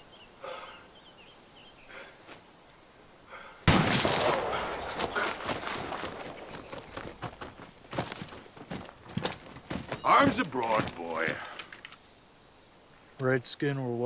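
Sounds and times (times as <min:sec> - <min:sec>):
gunshot with long echo: 0:03.6 - 0:06.4
rustles and knocks in undergrowth: 0:03.8 - 0:12.0.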